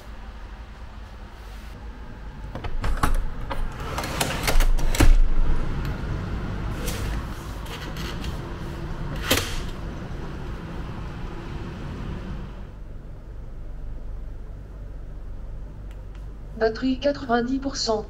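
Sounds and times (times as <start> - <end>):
city traffic rumble: 4.9 - 18.0.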